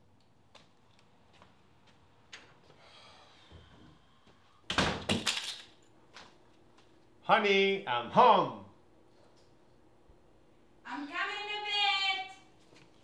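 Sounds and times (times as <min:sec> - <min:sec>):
door opening and shutting: 0:04.7 - 0:05.5.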